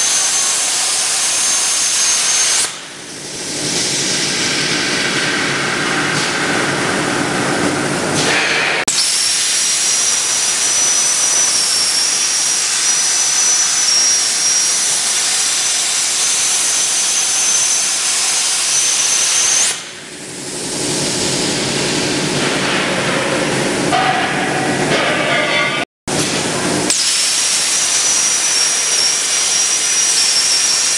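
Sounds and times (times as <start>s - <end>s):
plasma arc hissing and whining: 0.0s - 5.0s, 26.2s - 30.9s.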